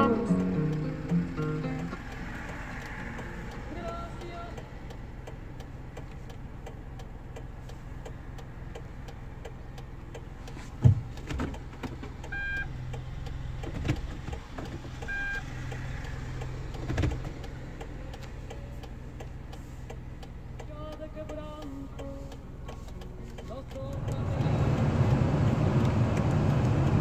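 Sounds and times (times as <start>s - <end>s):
engine idling hum: 0.0s - 27.0s
fast even ticking: 0.0s - 27.0s
short electronic beeps: 12.3s - 12.7s, 15.0s - 15.5s.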